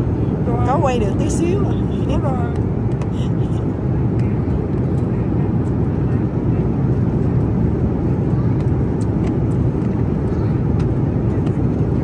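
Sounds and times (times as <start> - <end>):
jet cabin roar: 0.0 - 12.0.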